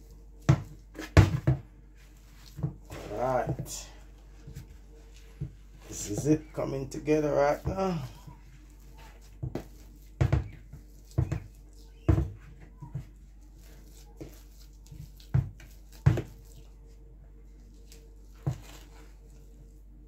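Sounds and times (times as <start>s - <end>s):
dough thumping in plastic bowl: 0.4s - 1.8s, 9.2s - 13.2s, 14.2s - 16.6s.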